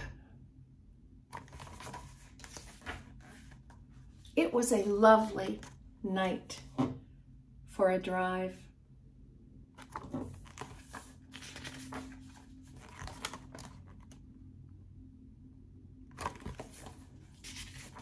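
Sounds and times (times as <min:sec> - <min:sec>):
book pages rustling: 0:01.3 - 0:04.4, 0:09.8 - 0:14.2, 0:16.1 - 0:18.0.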